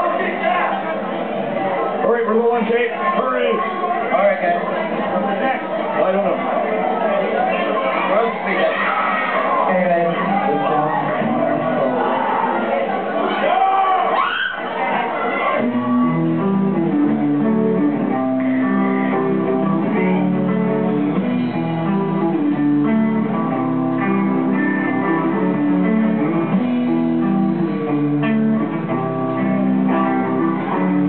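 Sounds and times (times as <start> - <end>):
strummed guitar chords: 9.6 - 13.4, 15.5 - 31.0.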